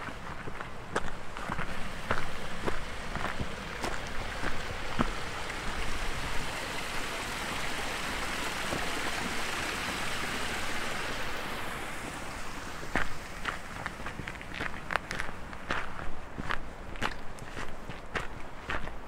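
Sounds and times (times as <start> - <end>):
stream splashing over boulders: 0.2 - 16.0.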